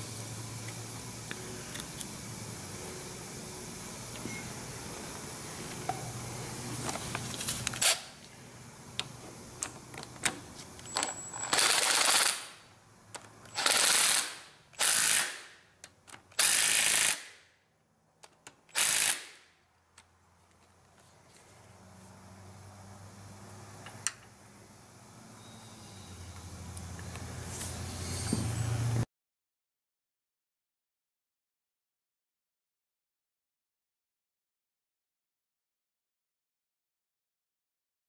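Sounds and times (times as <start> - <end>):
cordless power tool bursts: 7.4 - 8.2, 10.9 - 12.6, 13.5 - 15.6, 16.3 - 17.4, 18.7 - 19.5.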